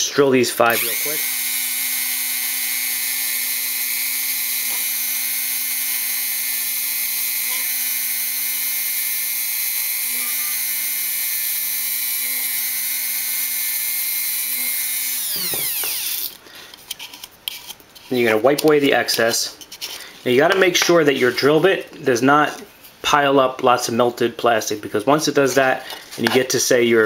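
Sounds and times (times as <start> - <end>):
rotary tool whining: 0.7 - 16.4
rotary tool winding down: 0.7 - 16.4.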